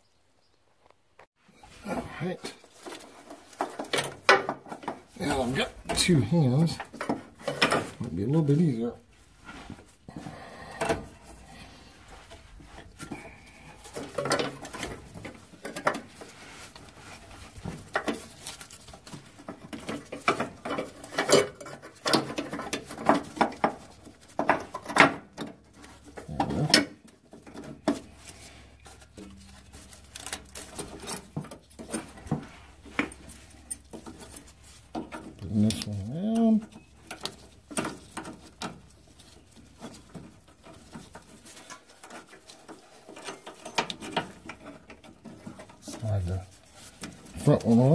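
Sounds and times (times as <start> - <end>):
clicks knocks and scrapes on metal: 2.6 - 8.1, 9.4 - 47.9.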